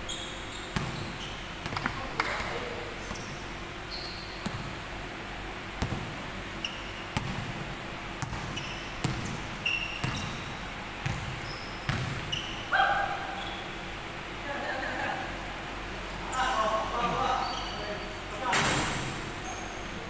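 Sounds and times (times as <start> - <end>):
sneakers squeaking on floor: 0.0 - 4.8, 5.8 - 7.6, 8.2 - 13.9, 16.2 - 20.0
basketball bouncing on hardwood: 5.8 - 6.1, 7.2 - 7.6, 8.2 - 9.4, 10.0 - 12.3.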